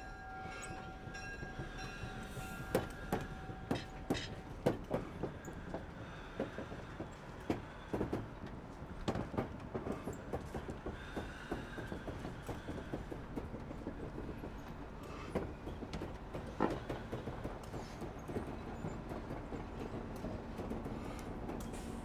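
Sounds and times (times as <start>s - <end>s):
steam locomotive rolling rumble: 0.0s - 22.0s.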